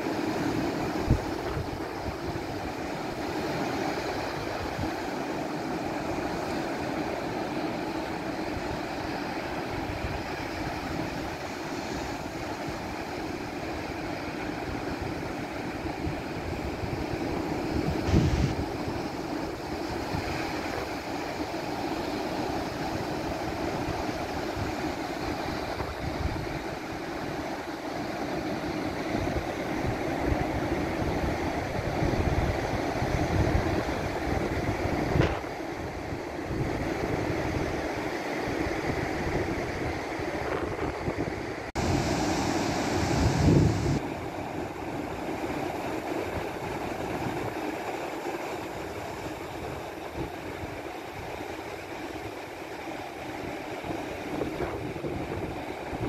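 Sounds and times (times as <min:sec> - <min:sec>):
ocean surf rushing: 0:00.0 - 0:56.0
wind buffeting microphone: 0:00.9 - 0:05.1, 0:14.6 - 0:21.0, 0:22.7 - 0:27.4, 0:29.0 - 0:47.6, 0:53.8 - 0:56.0.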